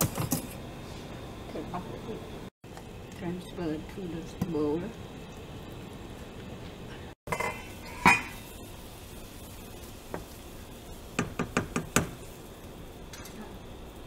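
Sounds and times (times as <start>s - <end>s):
boiling water hiss: 0.7s - 14.0s
spoon knocking on steel pot: 11.2s - 12.2s.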